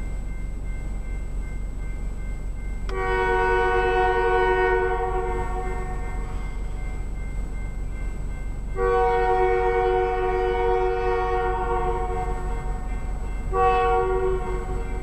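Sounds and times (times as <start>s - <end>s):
locomotive air horn blasts: 2.9s - 6.7s, 8.8s - 15.0s.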